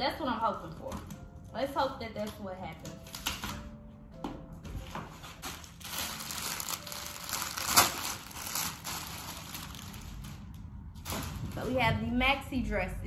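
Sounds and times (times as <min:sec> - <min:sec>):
plastic bag crinkling: 0:04.8 - 0:11.8.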